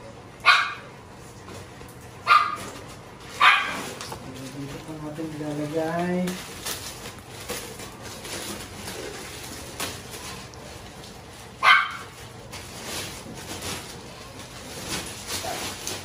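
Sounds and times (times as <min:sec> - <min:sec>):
dog bark: 0:00.4 - 0:00.9, 0:02.2 - 0:02.7, 0:03.4 - 0:03.9, 0:11.6 - 0:12.2
foam mats rustling and scraping: 0:02.4 - 0:16.0.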